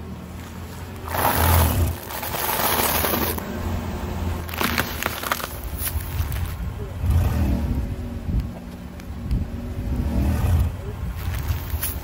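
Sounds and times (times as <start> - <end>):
low engine rumble: 0.0 - 12.0
tyre noise on asphalt: 0.0 - 12.0
tyre crackling over grit: 0.9 - 3.5, 4.4 - 7.3, 10.4 - 12.0.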